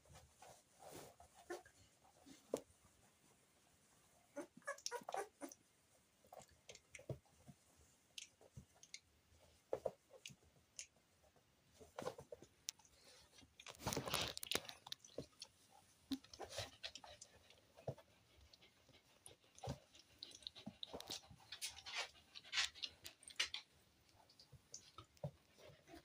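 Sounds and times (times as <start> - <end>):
puppies scrambling on a blanket: 0.0 - 5.5, 11.7 - 26.0.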